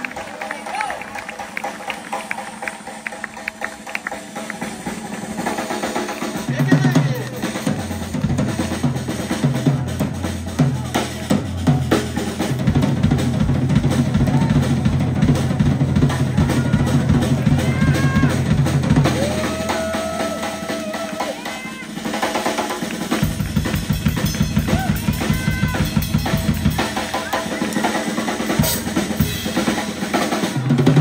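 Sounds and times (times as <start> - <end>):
fast busy drumming: 0.0 - 31.0
bass line: 6.4 - 20.9, 23.2 - 27.7.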